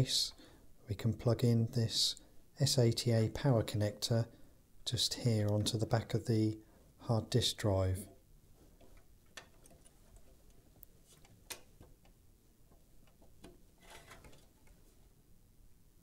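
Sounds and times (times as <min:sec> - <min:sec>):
cable rustling: 0:08.5 - 0:15.1.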